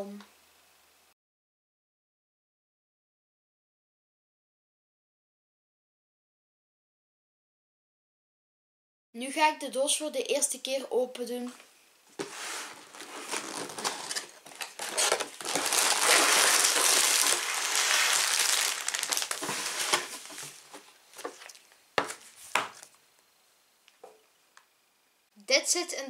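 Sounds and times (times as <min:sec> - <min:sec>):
cardboard scraping: 0:12.2 - 0:22.9
plastic bags crinkling: 0:12.2 - 0:22.9.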